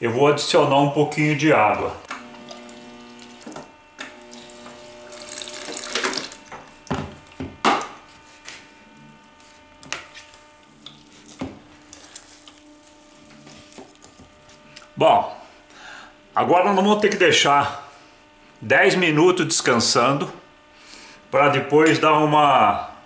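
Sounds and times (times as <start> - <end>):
water pouring into bowl: 2.3 - 3.6, 4.2 - 6.5.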